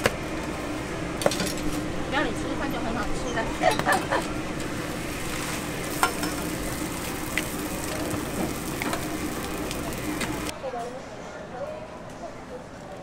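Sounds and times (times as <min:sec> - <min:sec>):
oil sizzling on a griddle: 0:04.6 - 0:10.5.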